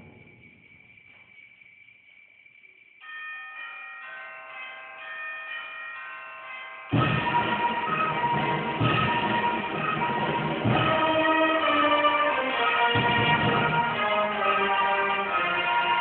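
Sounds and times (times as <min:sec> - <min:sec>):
concert band playing: 0:07.0 - 0:14.4.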